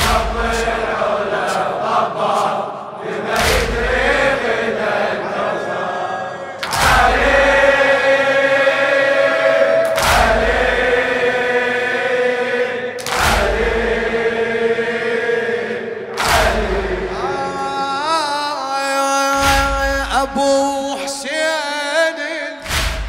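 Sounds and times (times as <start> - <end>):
men chanting a refrain: 0.0 - 5.9, 6.6 - 23.0.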